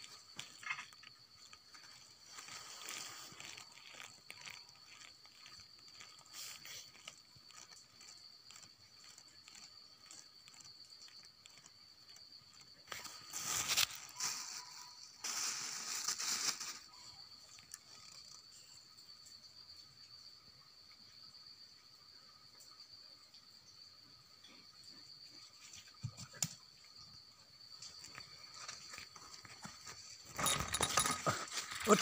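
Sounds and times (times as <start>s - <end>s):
rustling and crunching leaves: 0.0s - 12.2s, 12.8s - 17.1s
insects buzzing: 0.0s - 32.0s.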